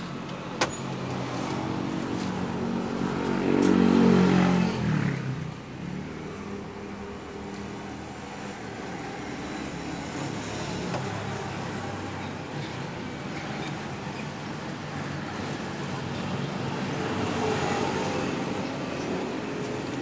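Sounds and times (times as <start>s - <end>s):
vehicle engine passing by: 1.4s - 6.6s.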